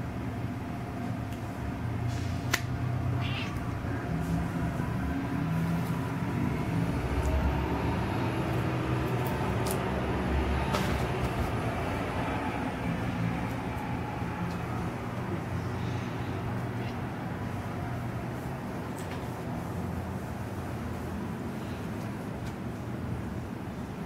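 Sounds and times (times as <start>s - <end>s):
cat meowing: 3.1s - 4.0s.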